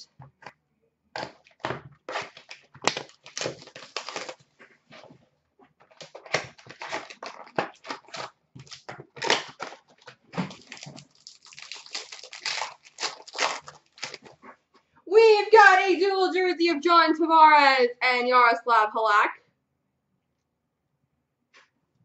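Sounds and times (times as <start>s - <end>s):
packaging crinkling and tearing: 1.2s - 5.1s, 5.8s - 14.6s.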